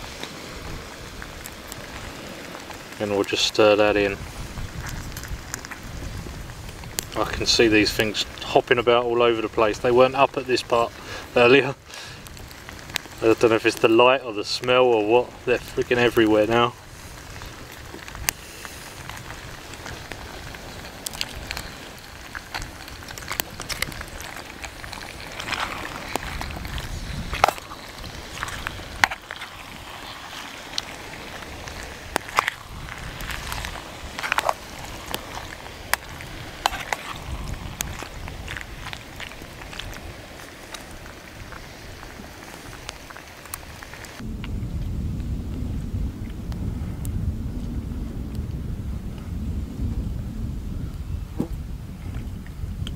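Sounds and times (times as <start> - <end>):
wind buffeting microphone: 0.0 - 52.9
pot of sauce simmering: 10.8 - 14.8, 16.9 - 44.3
low rumble: 44.2 - 52.9.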